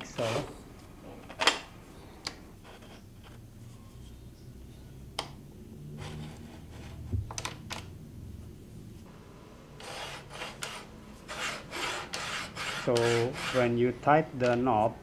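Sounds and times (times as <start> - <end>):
metal track scraping along slot: 9.8 - 13.8.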